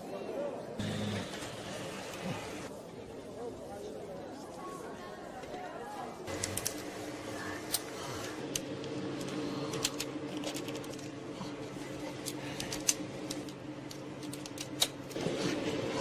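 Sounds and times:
steady low hum: 0:06.3 - 0:16.0.

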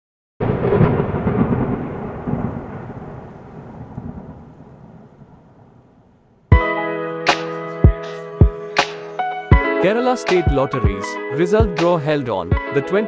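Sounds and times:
crackling thunder-like rumble: 0:00.4 - 0:06.6.

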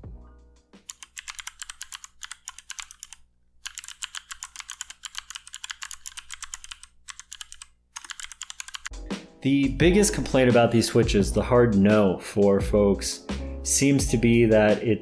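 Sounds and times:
mechanical keyboard clicks: 0:00.8 - 0:08.9.

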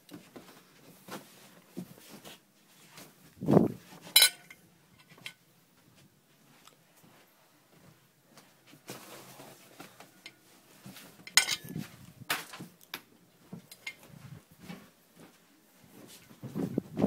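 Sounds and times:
objects knocking and clattering: 0:04.0 - 0:05.4, 0:11.2 - 0:12.7.

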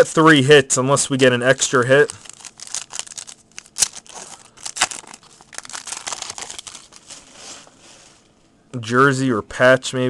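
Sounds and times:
card pack wrapper crinkling: 0:01.5 - 0:07.6.

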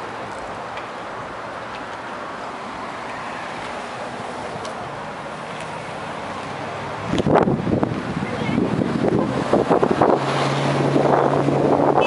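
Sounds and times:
traffic: 0:00.0 - 0:12.0
wind on microphone: 0:07.0 - 0:12.0.

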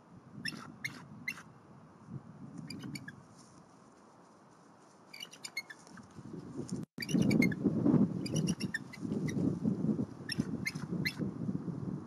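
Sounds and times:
eagle chittering calls: 0:00.4 - 0:01.5, 0:02.7 - 0:03.2, 0:05.1 - 0:05.8, 0:07.0 - 0:07.6, 0:08.2 - 0:09.4, 0:10.3 - 0:11.2.

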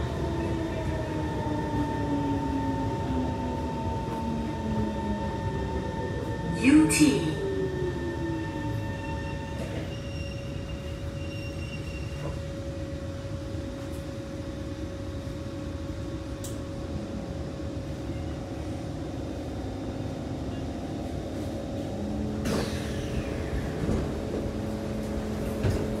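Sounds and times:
train equipment hum: 0:00.0 - 0:26.0
train doors opening rush: 0:06.1 - 0:13.0, 0:20.9 - 0:26.0.

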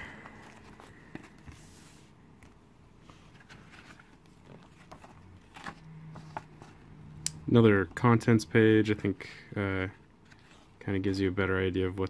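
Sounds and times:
paper rustling: 0:00.1 - 0:07.0.

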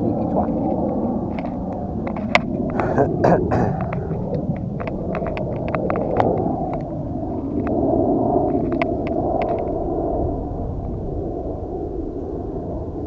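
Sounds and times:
wind rumbling on microphone: 0:00.0 - 0:13.0
camera and clothing clicks and rustles: 0:03.7 - 0:06.9.

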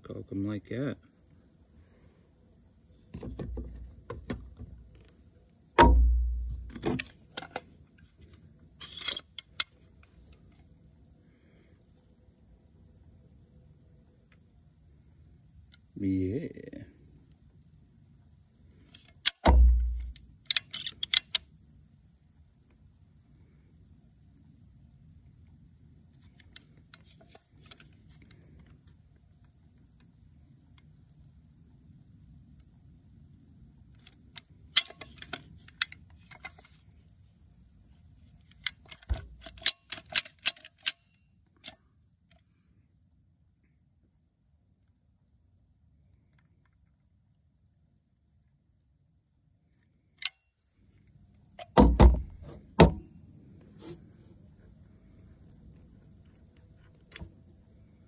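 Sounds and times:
insects droning: 0:00.0 - 0:58.0
heavy thump: 0:05.8 - 0:07.0, 0:19.5 - 0:20.2, 0:51.8 - 0:53.1.

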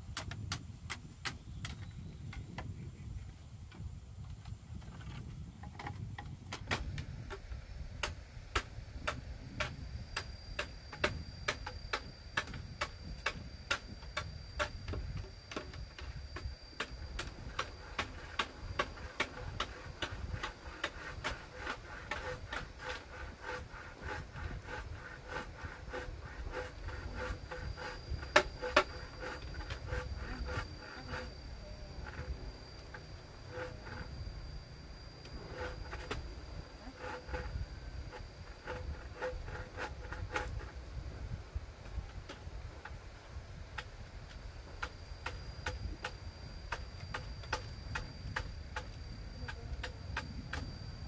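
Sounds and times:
tapping on bamboo: 0:00.1 - 0:02.7, 0:04.2 - 0:31.2, 0:44.8 - 0:50.8
thin high whine: 0:06.6 - 0:51.0.

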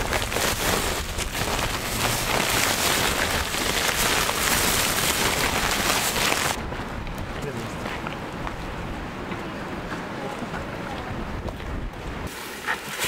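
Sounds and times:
plastic sheeting crinkling: 0:00.0 - 0:06.6
salt grains pouring into sack: 0:00.0 - 0:06.6.

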